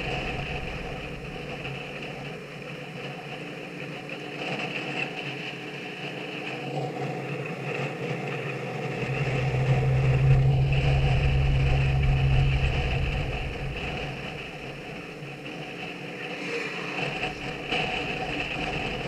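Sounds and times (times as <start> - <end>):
deep low rumble: 0.0 - 2.3, 8.7 - 19.0
vehicle engine humming: 8.4 - 19.0.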